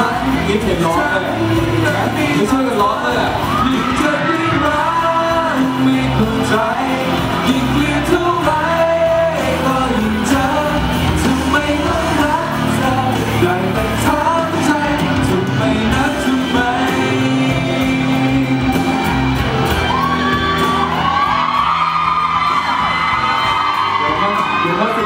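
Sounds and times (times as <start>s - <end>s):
audience shouting and whooping: 0.0s - 13.4s, 14.1s - 25.0s
man singing into microphone: 0.0s - 19.3s
pop ballad backing track: 0.0s - 25.0s.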